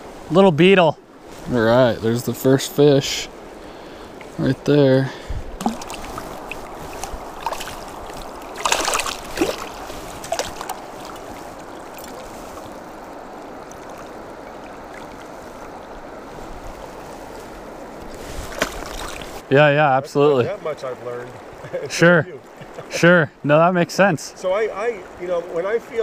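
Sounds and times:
river rushing and gurgling: 0.0s - 26.0s
water splashes: 1.1s - 19.5s.

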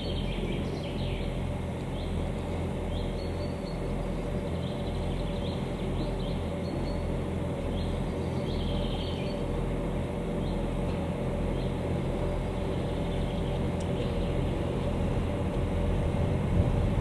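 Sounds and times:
diesel locomotive engine hum: 0.0s - 17.0s
bird chirps: 2.9s - 9.5s.

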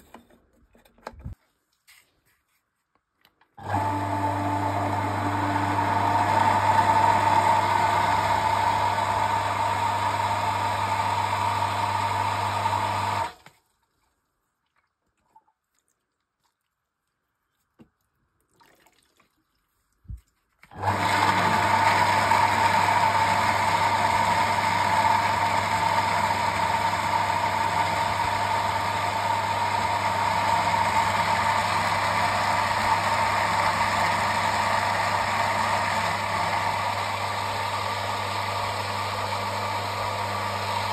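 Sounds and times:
electric pump humming and whining: 3.6s - 13.4s, 20.6s - 40.9s.

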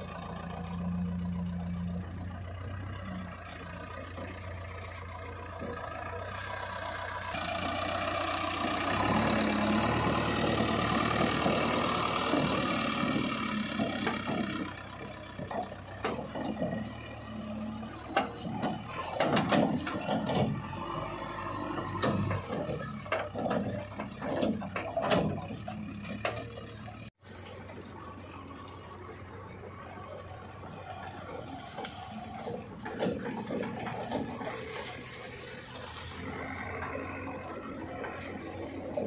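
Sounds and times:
diesel engine running under load: 0.0s - 39.0s
backhoe bucket knocks and clanks: 8.5s - 27.1s, 31.7s - 35.2s.

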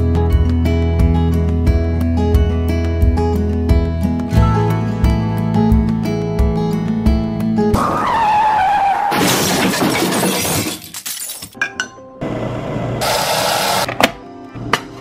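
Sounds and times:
background music: 0.0s - 8.4s, 11.5s - 12.6s, 13.8s - 15.0s
shattering sound effect: 9.1s - 10.9s.

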